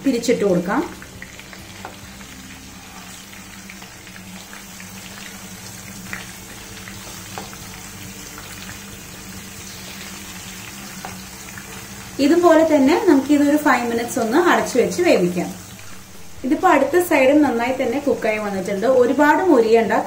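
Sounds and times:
chicken sizzling in oil: 0.0s - 20.0s.

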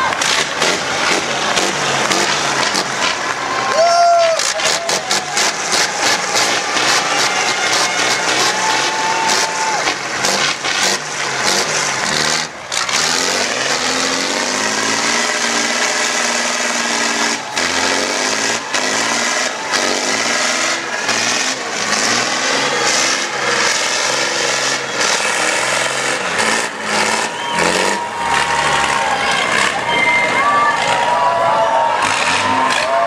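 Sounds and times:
truck engine revving: 0.0s - 33.0s.

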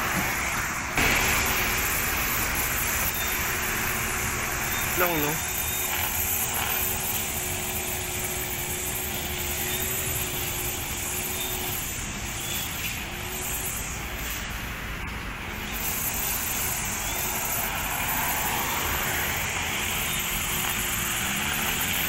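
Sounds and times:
passing road traffic: 0.0s - 22.0s
grass trimmer engine running: 1.0s - 13.9s, 15.6s - 22.0s.

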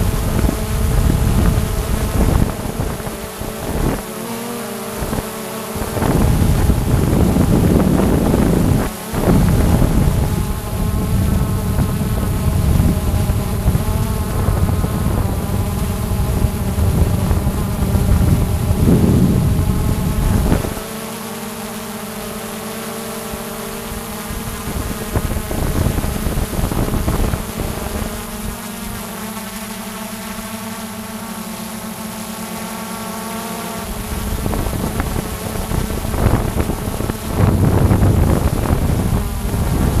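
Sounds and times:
drone propellers whining: 0.0s - 40.0s
loud low rushing noise: 6.1s - 20.8s.

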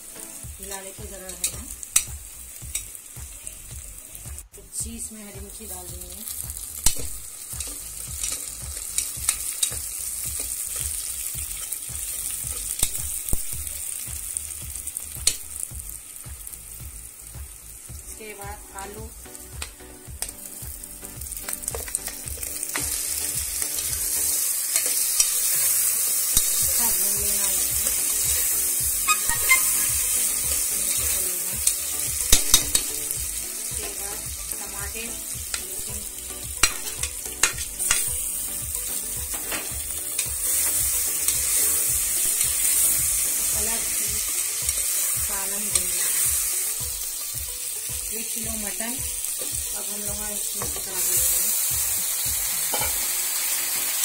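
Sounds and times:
vegetables sizzling in hot oil: 0.0s - 54.0s
ladle scraping pot: 29.0s - 29.9s.

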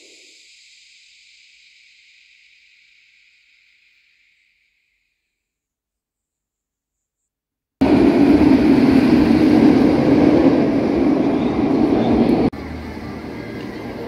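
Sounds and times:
roller coaster rumbling on track: 7.8s - 14.0s.

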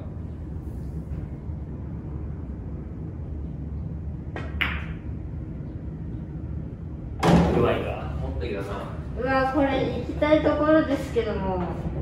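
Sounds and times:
low room hum: 0.0s - 12.0s
cue striking ball: 4.4s - 5.0s.

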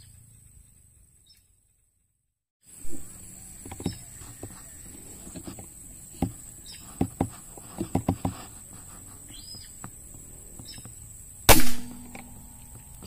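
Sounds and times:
air rifle shot: 11.5s - 13.0s.

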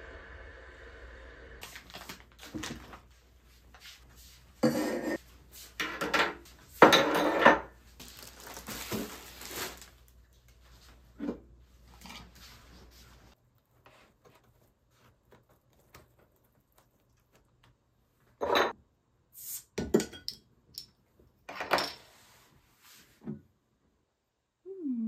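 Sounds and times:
tableware clattering: 5.8s - 7.7s, 18.4s - 18.8s.

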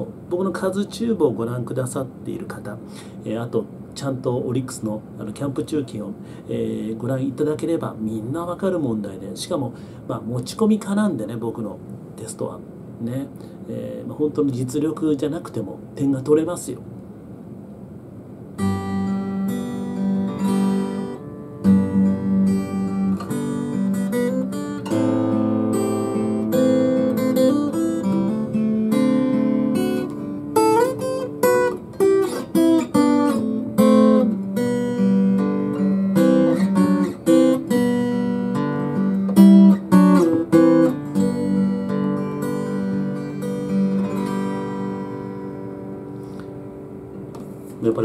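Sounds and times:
acoustic guitar chords and melody: 18.4s - 48.0s.

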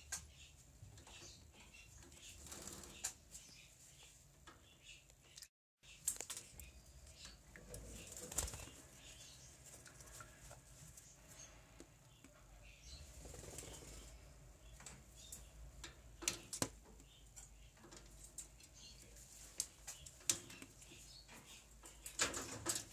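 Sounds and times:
bird wings fluttering: 8.0s - 8.8s.

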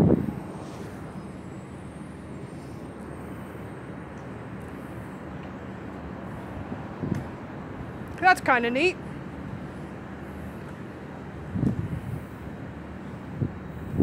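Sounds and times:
distant city traffic hum: 0.0s - 14.0s.

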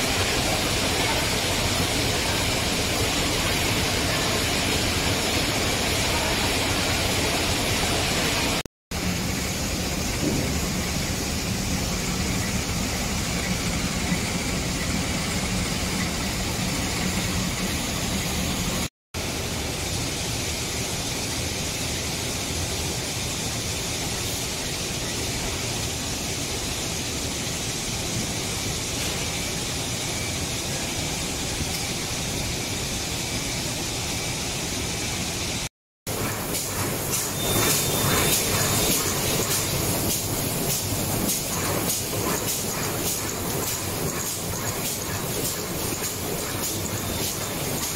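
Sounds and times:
machinery humming: 36.1s - 47.9s.

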